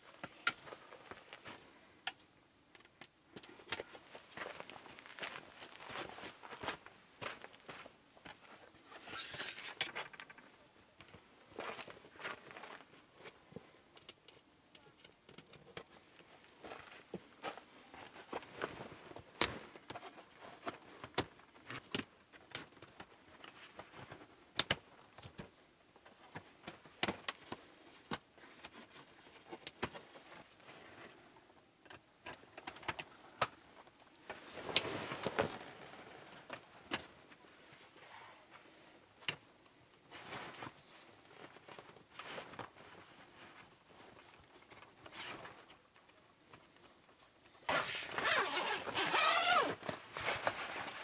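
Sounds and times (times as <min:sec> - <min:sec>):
canvas rustling: 0:34.3 - 0:38.0, 0:47.7 - 0:51.0.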